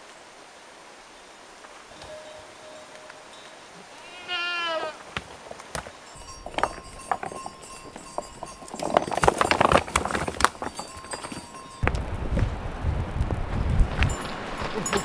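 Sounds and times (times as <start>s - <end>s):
goat bleating: 4.0s - 5.1s
twigs and branches crackling: 5.0s - 15.0s.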